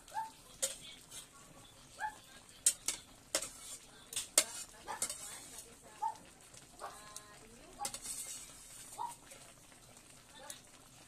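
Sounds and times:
metal kitchenware clinking: 0.5s - 1.3s, 2.5s - 5.6s, 7.8s - 8.9s.

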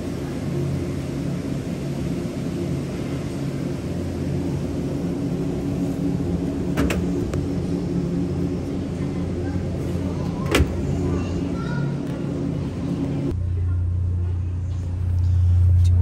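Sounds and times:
refrigerator and ventilation hum: 0.0s - 16.0s.

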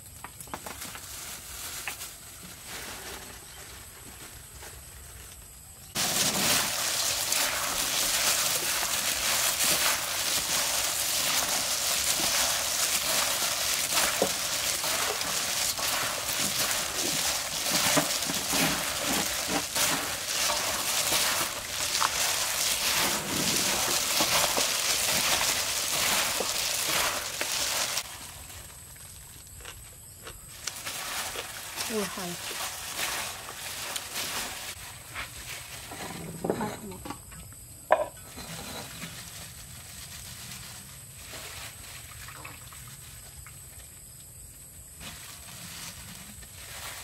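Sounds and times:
gloved hands tossing wet salad: 6.0s - 29.3s, 30.5s - 35.8s, 45.0s - 47.0s.

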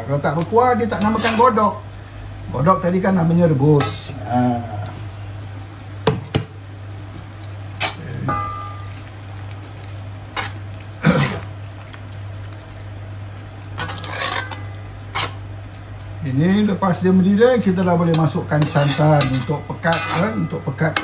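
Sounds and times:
spatula knocking against pot: 6.0s - 6.5s
liquid bubbling: 6.8s - 16.3s
spatula stirring stew: 13.8s - 15.4s, 18.1s - 21.0s.

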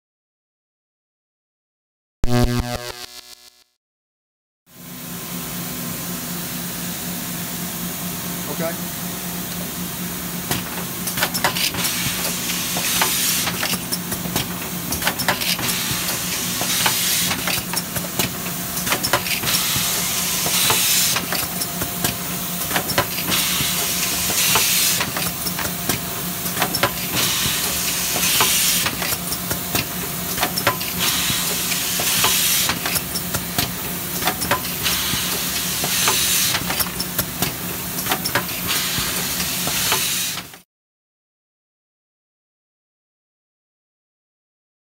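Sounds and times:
rapid mechanical clicks and knocks: 10.5s - 40.6s.

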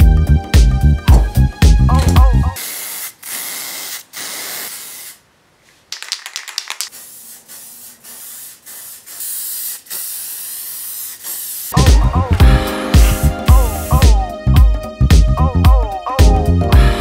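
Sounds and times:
spray paint can hissing: 2.6s - 5.2s, 5.9s - 11.9s, 12.9s - 14.2s
spray can clicks: 5.9s - 11.8s.

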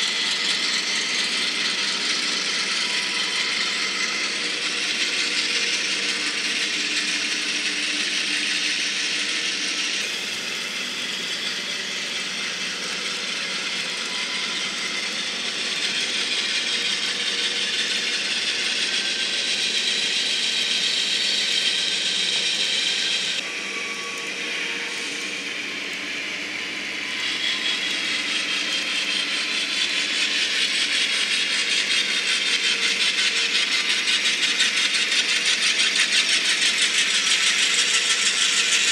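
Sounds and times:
locomotive motor whine: 0.0s - 38.9s
model train wheels clicking: 0.0s - 38.9s.

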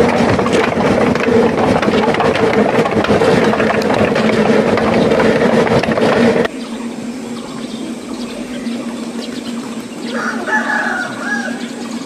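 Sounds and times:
steady low hum: 0.0s - 12.0s
steam locomotive: 0.0s - 12.0s
rooster crowing: 10.0s - 12.0s.

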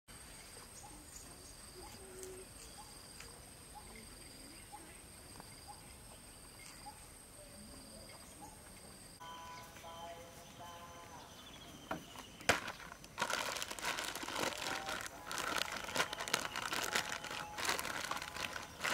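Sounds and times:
bird chirping: 0.3s - 13.0s, 15.7s - 18.9s
insects trilling: 9.1s - 18.9s.

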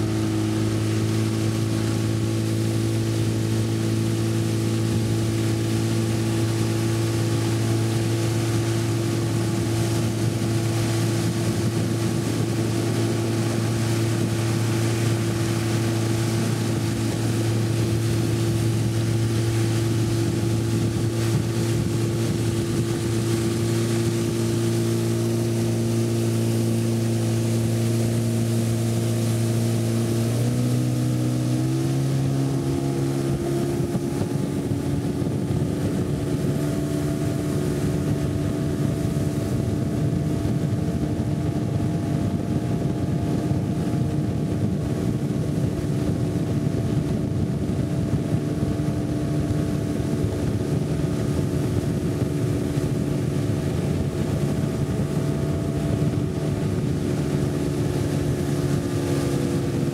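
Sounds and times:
motorboat engine running: 0.0s - 59.9s.

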